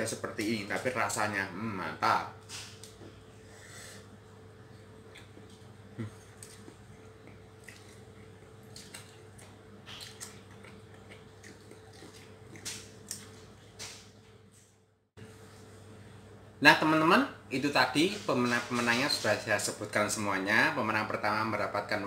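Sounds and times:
steady low hum: 0.0s - 22.0s
chewing and mouth smacks: 4.8s - 14.0s.

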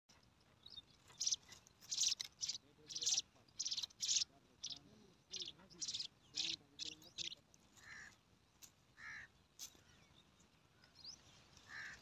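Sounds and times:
nestlings begging calls: 0.6s - 8.2s.

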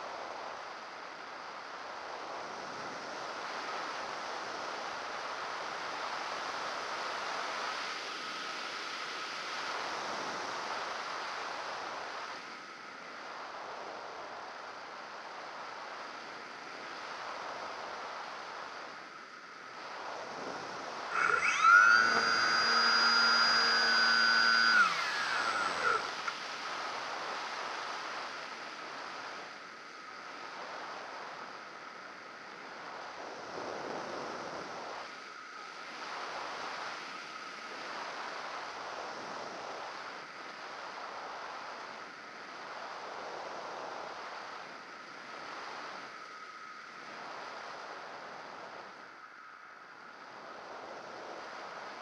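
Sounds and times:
model airplane motor whining: 21.1s - 26.4s.

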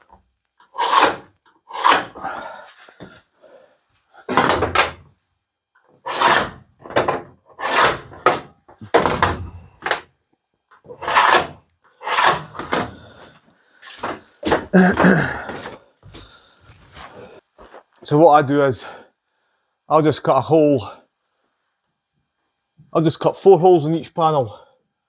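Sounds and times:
scriber scratching sheet metal: 0.6s - 2.2s, 6.0s - 6.6s, 7.5s - 8.3s, 10.8s - 12.6s.

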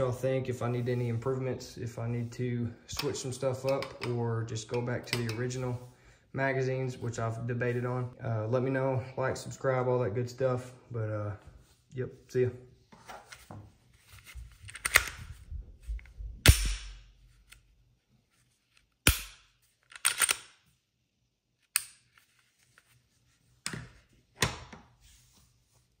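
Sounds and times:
pistol clicking in plastic holster: 14.7s - 15.3s, 19.1s - 20.6s.

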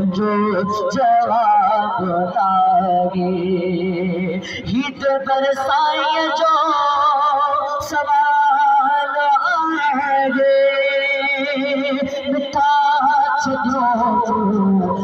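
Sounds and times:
man singing into a microphone: 0.0s - 15.0s.

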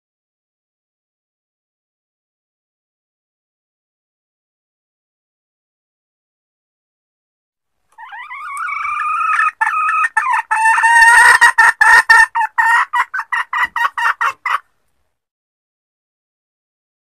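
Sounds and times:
hen calling and clucking: 7.9s - 14.7s.

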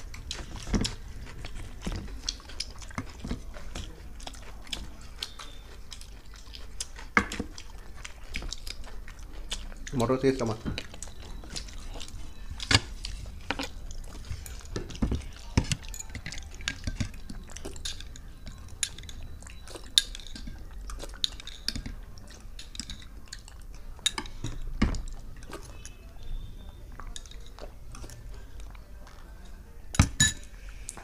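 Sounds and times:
chewing: 0.0s - 31.0s
spoons clinking against bowls: 0.0s - 31.0s
dishes clicking: 12.6s - 25.6s.

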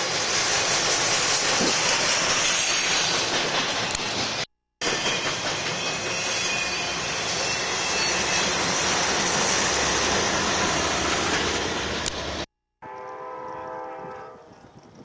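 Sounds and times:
diesel locomotive engines: 0.0s - 15.0s
steel wheels on rail: 0.0s - 15.0s.

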